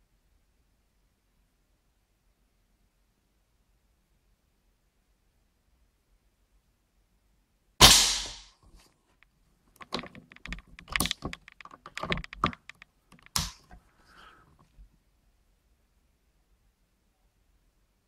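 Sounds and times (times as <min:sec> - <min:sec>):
air rifle shot: 0:07.8 - 0:08.5.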